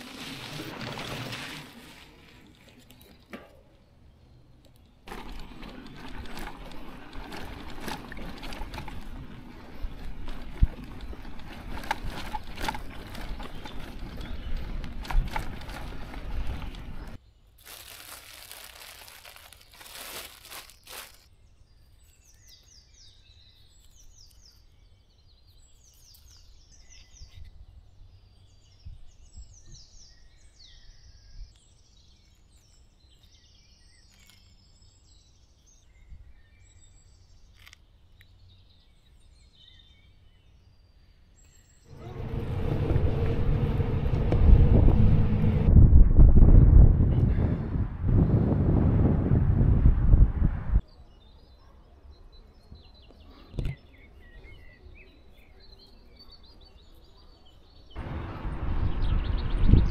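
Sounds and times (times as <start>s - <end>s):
rustling crinkling noise: 0.0s - 3.4s, 5.0s - 21.3s
bike rattling: 0.0s - 3.7s, 5.1s - 21.2s, 41.9s - 47.5s
bicycle tyres on sandy dirt: 0.0s - 4.3s, 4.9s - 21.3s, 41.7s - 50.8s, 58.0s - 59.9s
songbirds chirping: 2.2s - 45.7s, 50.8s - 59.9s
light clicks and crunches: 4.6s - 21.3s.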